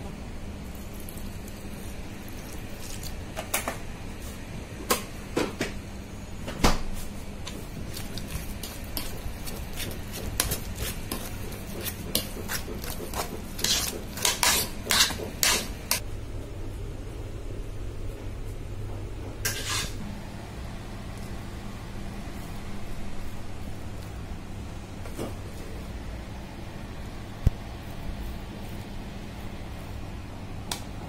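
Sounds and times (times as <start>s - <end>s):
low steady hum: 0.0s - 31.0s
potato masher knocking in pot: 8.2s - 16.0s.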